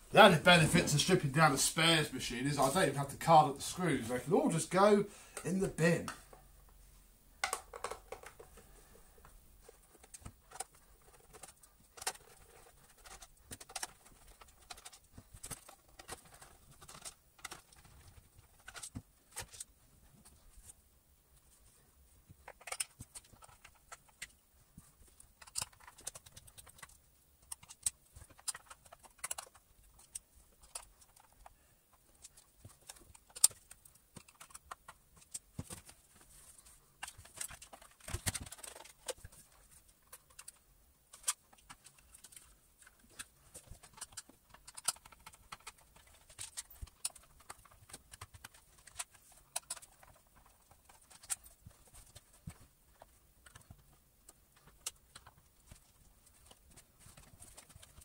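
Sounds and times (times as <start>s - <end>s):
small clicks and taps of parts: 21.4s - 58.0s.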